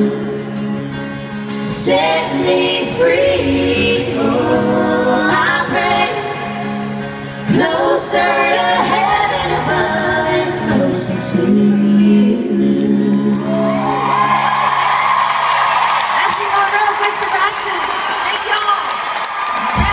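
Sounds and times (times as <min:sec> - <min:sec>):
live country band: 0:00.0 - 0:19.9
person singing: 0:07.4 - 0:13.9.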